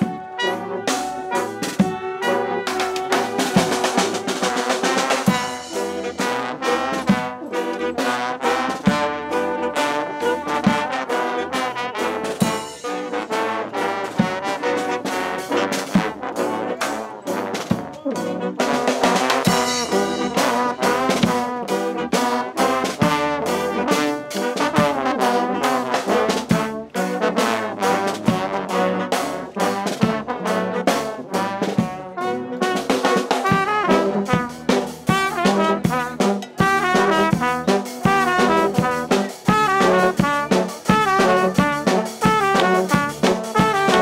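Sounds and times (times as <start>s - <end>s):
brass band playing: 0.0s - 44.0s
drums keeping a beat: 0.0s - 44.0s.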